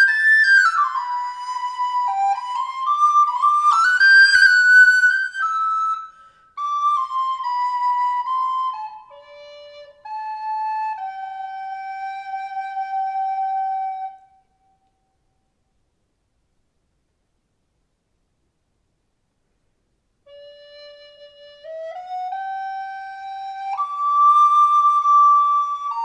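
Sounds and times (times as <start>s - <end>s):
recorder playing a carol melody: 20.3s - 26.0s.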